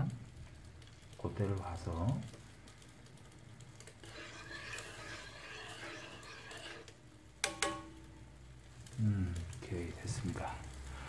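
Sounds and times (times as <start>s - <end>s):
spoon stirring in pan: 1.4s - 8.9s
spoon knocking on pan: 7.4s - 8.0s.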